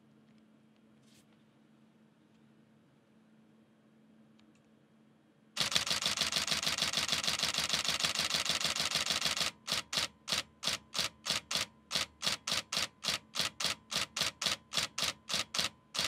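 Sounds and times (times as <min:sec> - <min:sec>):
camera shutter clattering: 0:05.6 - 0:16.0.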